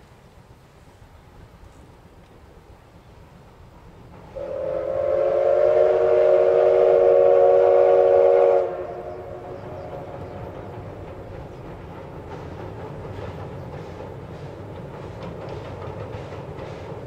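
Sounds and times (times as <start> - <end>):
train running noise: 0.0 - 17.0
steam locomotive whistle: 4.3 - 10.6.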